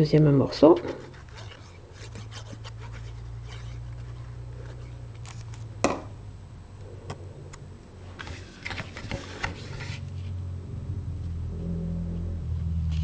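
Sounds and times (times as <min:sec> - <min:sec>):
low steady hum: 0:00.0 - 0:13.0
paper rustling and scraping: 0:00.5 - 0:05.7, 0:08.0 - 0:10.4.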